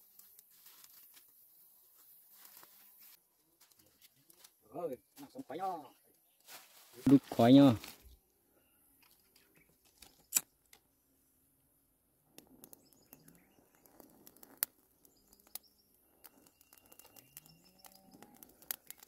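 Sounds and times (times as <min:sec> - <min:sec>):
rustling of large leaves: 0:00.0 - 0:04.6, 0:06.4 - 0:08.1.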